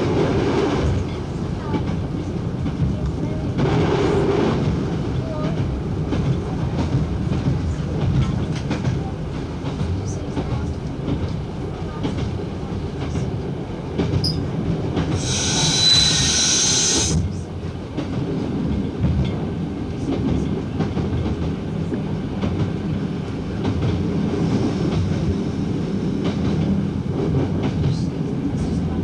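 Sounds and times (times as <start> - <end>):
train engine and wheels rumbling: 0.0 - 29.0
loud high-pitched hissing burst: 15.2 - 17.2.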